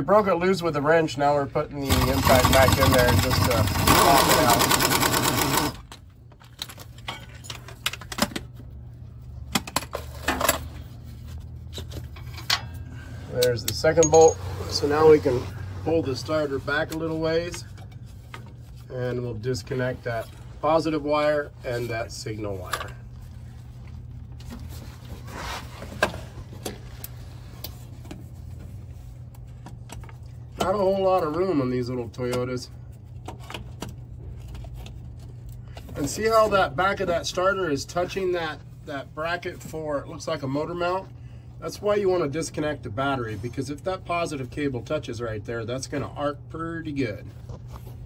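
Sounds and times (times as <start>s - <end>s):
steady low hum: 0.0s - 48.0s
light metallic clinks and rattles: 13.7s - 14.4s.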